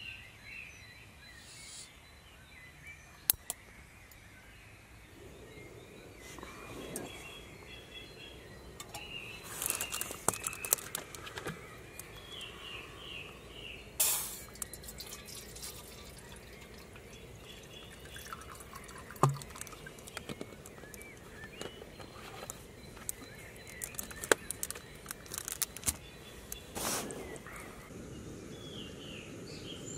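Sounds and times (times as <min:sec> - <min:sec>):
water pouring into pot: 0:14.0 - 0:20.7
water splashes and drips: 0:14.0 - 0:21.2.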